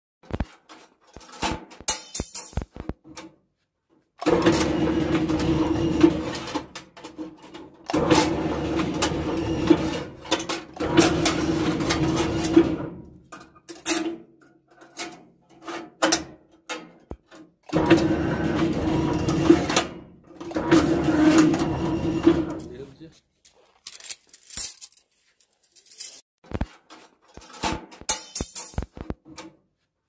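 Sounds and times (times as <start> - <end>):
steel bars clattering: 0.2 - 2.9, 23.5 - 29.4.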